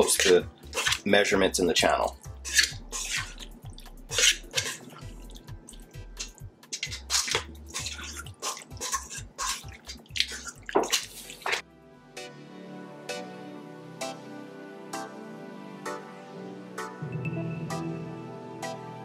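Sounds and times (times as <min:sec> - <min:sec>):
wet squelches of fruit: 0:00.0 - 0:01.3, 0:02.0 - 0:11.6.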